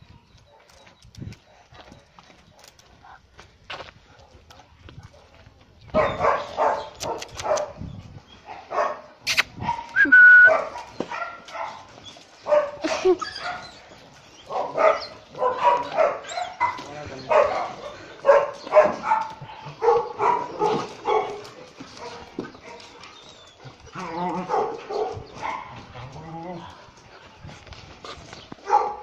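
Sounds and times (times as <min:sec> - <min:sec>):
dogs barking: 0:04.0 - 0:07.8, 0:08.4 - 0:26.7, 0:28.6 - 0:29.0.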